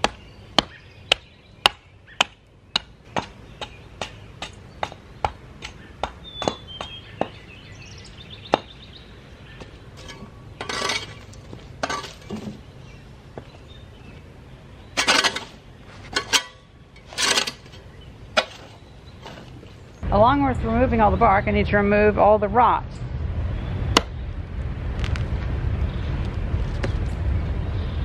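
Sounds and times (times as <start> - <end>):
tool scraping bark off log: 10.0 - 12.7, 15.0 - 19.7.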